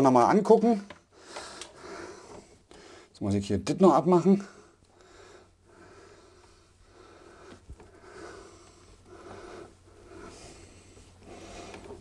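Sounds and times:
man breathing through nose: 1.1s - 3.1s, 4.6s - 12.0s.

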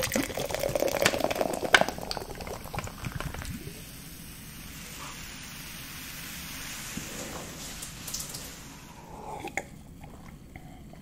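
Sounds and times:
soda pouring into glass: 0.0s - 5.0s
fizzing hiss: 0.0s - 9.7s.

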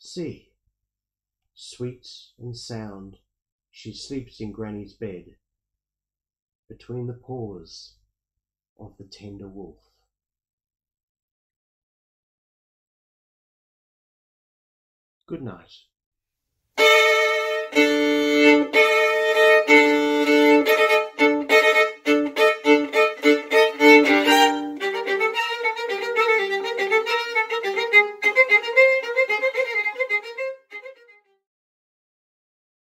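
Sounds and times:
violin playing: 16.8s - 31.4s.

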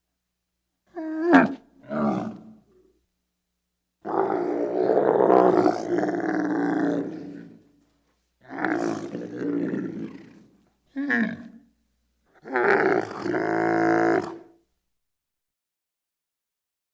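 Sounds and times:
camel bellowing: 12.4s - 14.5s.

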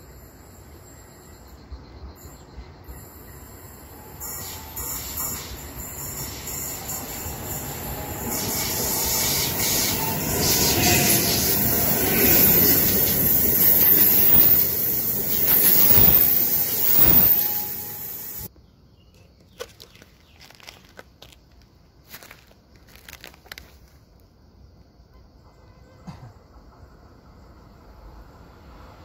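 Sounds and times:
train wheels on rails: 2.5s - 18.5s, 25.4s - 29.0s
wheel squeal: 4.0s - 18.5s.

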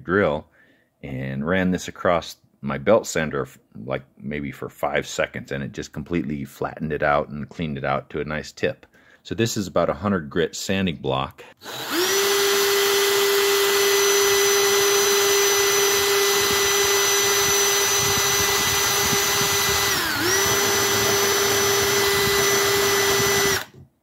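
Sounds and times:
electric drill motor whine: 11.6s - 23.8s.

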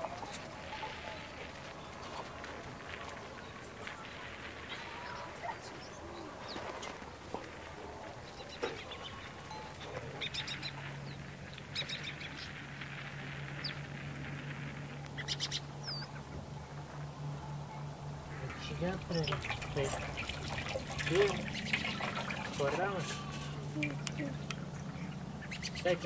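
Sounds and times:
clicks and rustles: 0.0s - 25.4s
low steady hum: 0.0s - 26.0s
small birds chirping: 0.0s - 26.0s.

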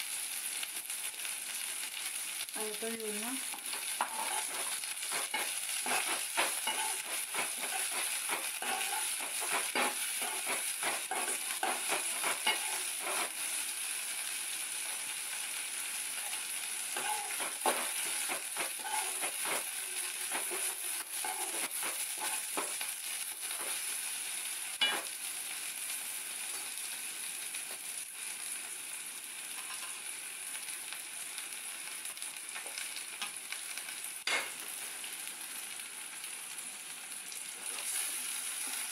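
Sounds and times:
onions sizzling in oil: 0.0s - 38.9s
spoon scraping metal pan: 3.6s - 13.4s, 17.0s - 22.8s.

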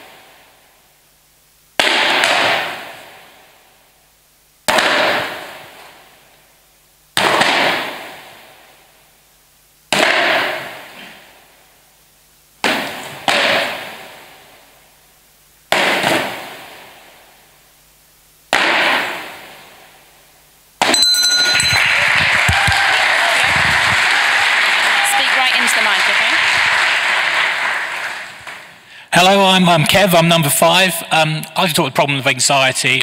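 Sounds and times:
audience applause: 21.4s - 28.8s.

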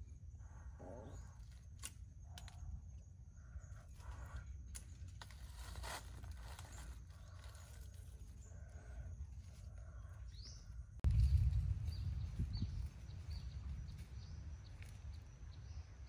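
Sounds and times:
dry leaves rustling and clicking: 4.0s - 8.5s
steady low rumble: 8.2s - 16.0s.

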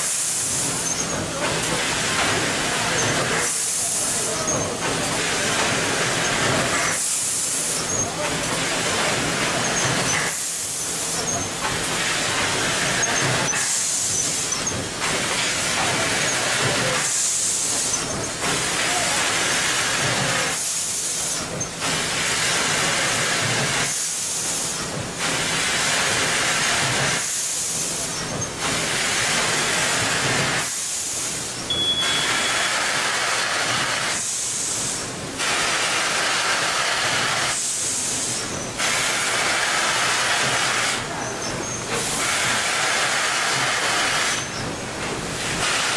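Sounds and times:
packing machine mechanical din: 0.0s - 45.9s
compressed air hiss: 32.2s - 41.1s, 41.9s - 44.5s.

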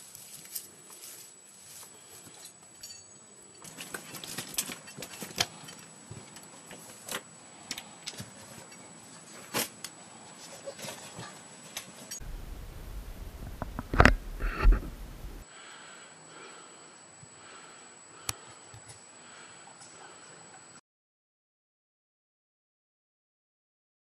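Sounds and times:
climbing gear clinking: 2.3s - 6.4s
steady low noise: 12.2s - 15.4s.

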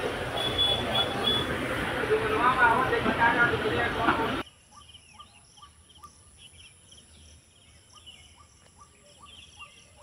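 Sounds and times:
birds chattering: 4.4s - 10.0s.

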